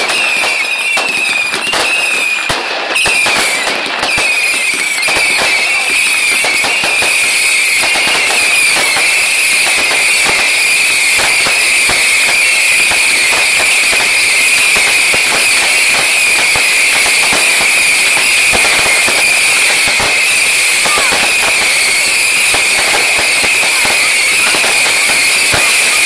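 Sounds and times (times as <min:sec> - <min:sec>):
fireworks bangs and crackling: 0:00.0 - 0:26.0.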